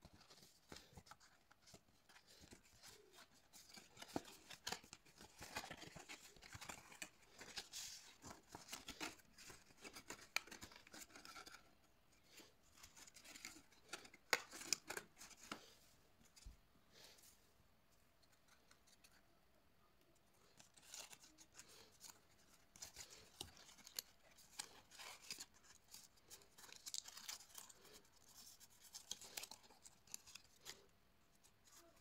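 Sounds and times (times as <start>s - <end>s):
stiff paper crackling and rustling: 0.0s - 11.8s, 20.4s - 32.0s.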